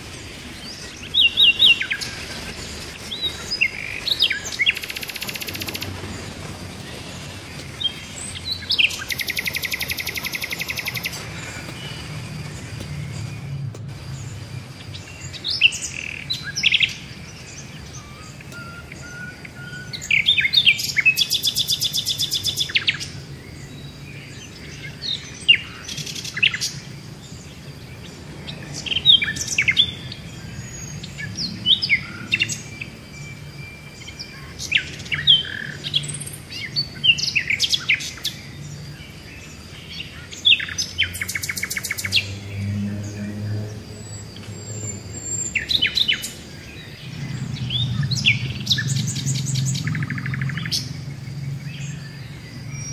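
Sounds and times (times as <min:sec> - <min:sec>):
birds chirping: 0:00.0 - 0:52.9
fast bird trill: 0:00.7 - 0:06.0, 0:07.8 - 0:12.0
steady low hum: 0:41.8 - 0:52.9.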